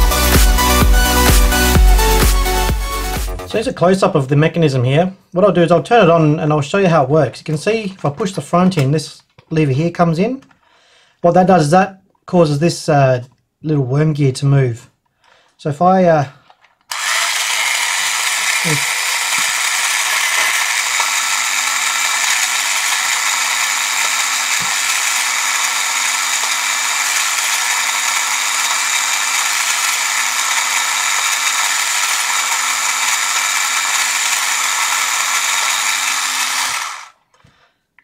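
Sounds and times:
toy motor whirring: 16.6s - 37.2s.

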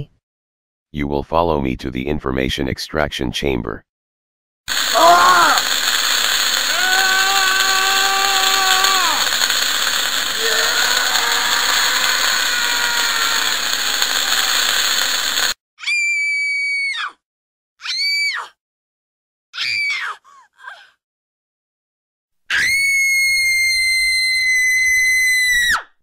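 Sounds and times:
wailing cries of pain: 4.7s - 5.8s, 6.4s - 15.0s, 19.6s - 20.8s
harsh electrical buzzing: 4.7s - 15.6s
high-pitched shrieks: 4.7s - 16.6s.

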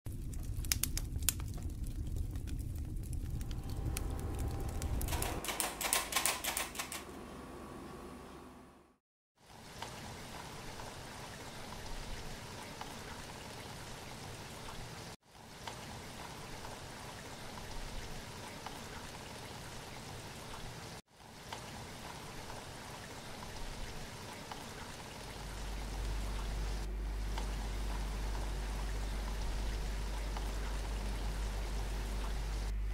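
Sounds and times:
raindrop ticks: 0.1s - 6.0s, 27.3s - 32.4s
steady rain hiss: 9.4s - 32.9s.

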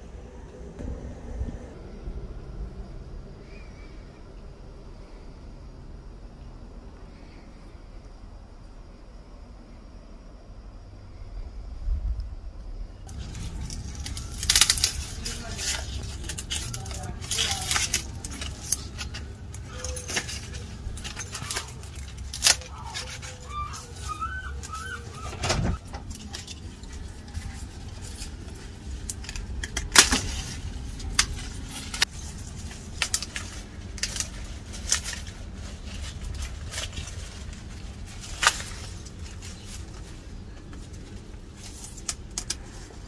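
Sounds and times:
leaves and husks rustling: 12.4s - 43.0s
bird calling: 13.1s - 25.9s
corn ears snapping: 13.1s - 43.0s.

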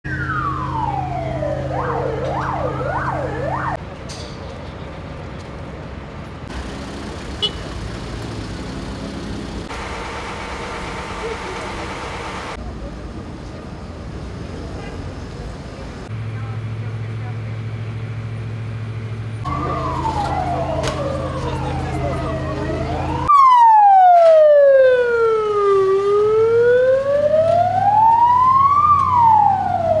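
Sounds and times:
emergency vehicle siren: 0.0s - 3.8s, 19.4s - 30.0s
street noise: 0.0s - 30.0s
engine droning: 5.1s - 13.6s, 14.2s - 23.3s.

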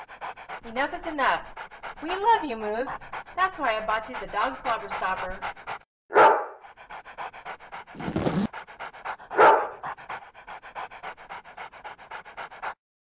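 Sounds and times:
dog panting rapidly: 0.0s - 12.8s
louder breaths: 6.7s - 12.8s.

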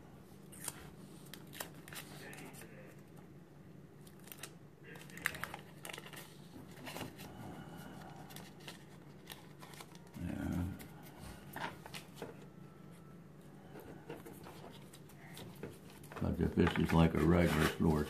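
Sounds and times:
paper backing peeling and crinkling: 4.0s - 13.0s, 13.6s - 18.0s.

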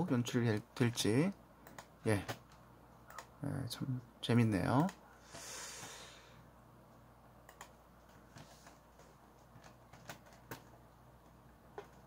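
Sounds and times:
computer mouse clicks: 1.6s - 3.3s, 4.7s - 5.0s, 7.4s - 10.8s.

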